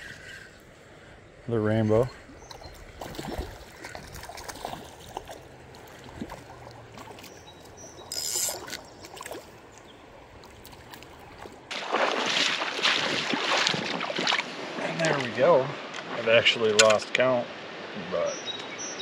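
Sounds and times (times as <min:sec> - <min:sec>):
rippling river water: 0:02.0 - 0:18.9
waders splashing through water: 0:02.2 - 0:16.4
fish splashing at surface: 0:03.0 - 0:07.3, 0:10.4 - 0:14.8.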